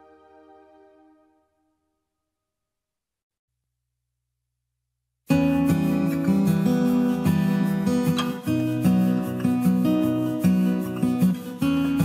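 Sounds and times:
acoustic guitar chords: 0:05.3 - 0:12.0.

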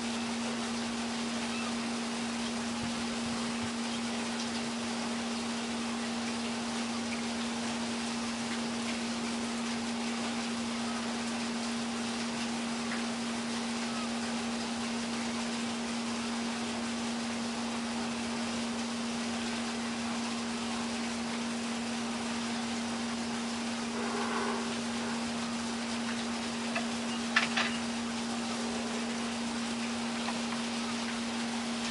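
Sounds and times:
steady hum: 0:00.0 - 0:31.9
even hiss: 0:23.7 - 0:26.9.

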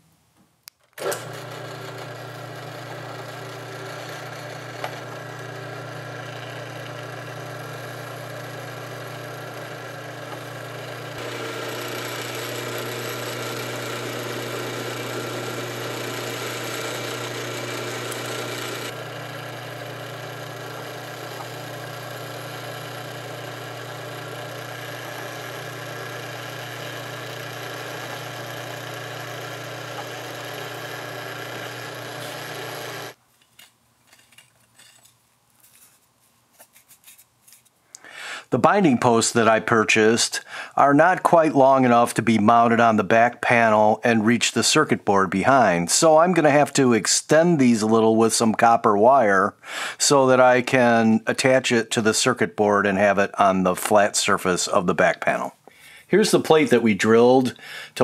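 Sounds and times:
drill bit cutting acrylic: 0:01.0 - 0:33.2
drill press motor running: 0:01.0 - 0:33.2.

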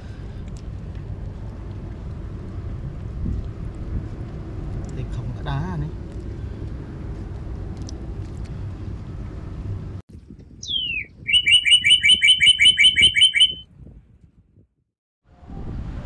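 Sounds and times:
low outdoor rumble: 0:00.0 - 0:14.7
bird chirping trill: 0:10.6 - 0:13.6
falling whistle: 0:10.6 - 0:13.6.

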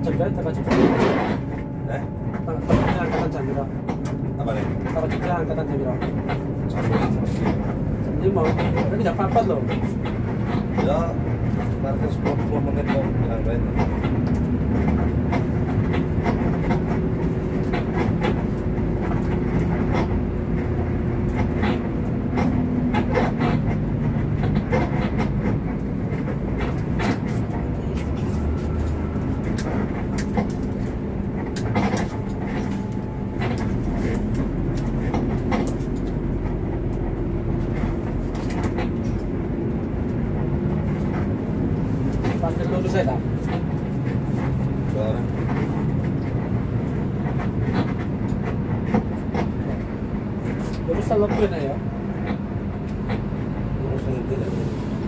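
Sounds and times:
bus engine and road rumble: 0:00.0 - 0:55.0.

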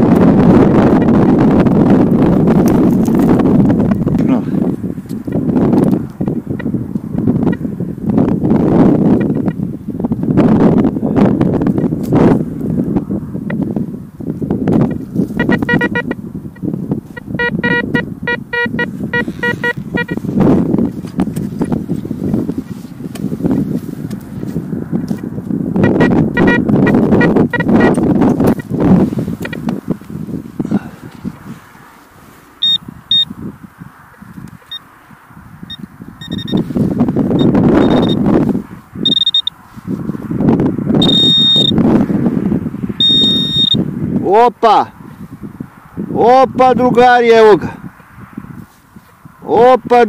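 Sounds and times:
wind rustling: 0:00.0 - 0:50.0
metal detector beeps: 0:09.2 - 0:09.6, 0:14.8 - 0:16.2, 0:17.1 - 0:20.2, 0:25.8 - 0:28.7, 0:29.4 - 0:29.7, 0:32.6 - 0:33.3, 0:34.6 - 0:34.9, 0:35.7 - 0:36.7, 0:37.4 - 0:38.2, 0:39.0 - 0:39.6, 0:41.0 - 0:41.8, 0:43.0 - 0:43.8
hands scraping loose dirt: 0:18.8 - 0:25.5, 0:27.2 - 0:32.6.

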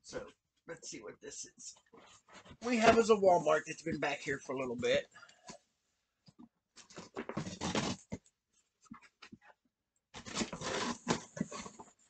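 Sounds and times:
tape and cardboard ripping: 0:07.0 - 0:08.2, 0:10.2 - 0:11.7.

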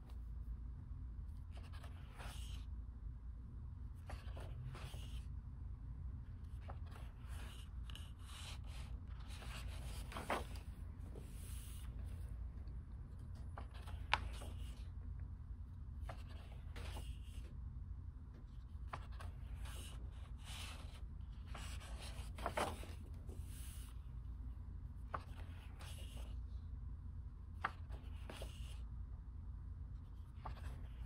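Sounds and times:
low steady hum: 0:00.0 - 0:31.0
book pages turning: 0:01.5 - 0:02.6, 0:04.0 - 0:05.2, 0:06.5 - 0:14.9, 0:16.0 - 0:17.4, 0:18.5 - 0:24.0, 0:25.0 - 0:26.3, 0:27.6 - 0:28.8, 0:30.1 - 0:31.0.

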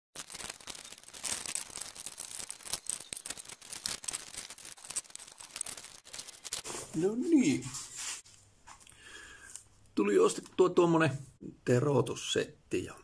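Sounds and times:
paper rustling: 0:00.2 - 0:08.2.

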